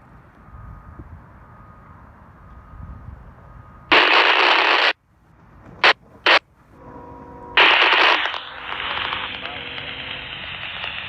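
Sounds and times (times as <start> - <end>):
radio crackles: 3.9 - 5.0, 5.7 - 6.5, 7.6 - 11.0
radio static burst: 3.9 - 5.0, 5.8 - 6.4, 7.6 - 11.0.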